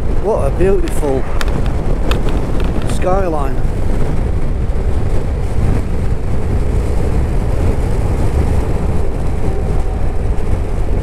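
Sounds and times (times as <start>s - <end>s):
wind buffeting microphone: 0.0s - 11.0s
scooter engine hum: 5.5s - 11.0s.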